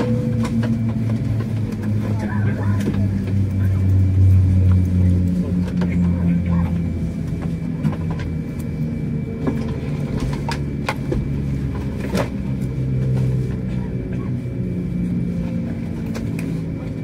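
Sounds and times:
low cabin hum: 0:00.0 - 0:17.0.

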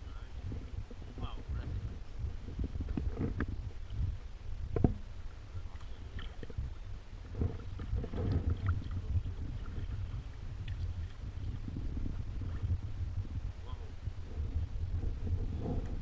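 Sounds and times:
steady low rumble: 0:00.0 - 0:16.0
paddle splashes and drips: 0:05.2 - 0:06.6, 0:07.5 - 0:11.6.

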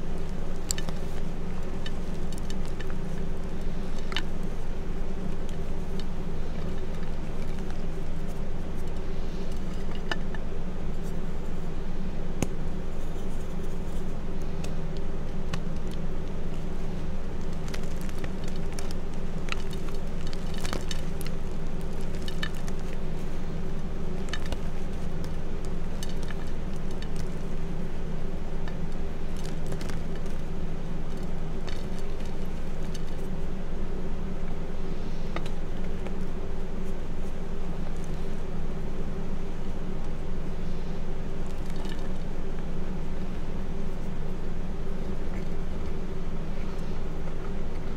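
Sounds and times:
low background hum: 0:00.0 - 0:47.9
chalk chunks crunching in hands: 0:12.9 - 0:27.6.

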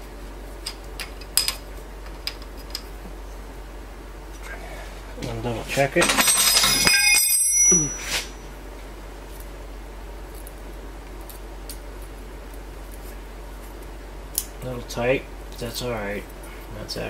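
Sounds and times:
metal hand tools clinking: 0:06.0 - 0:08.4.

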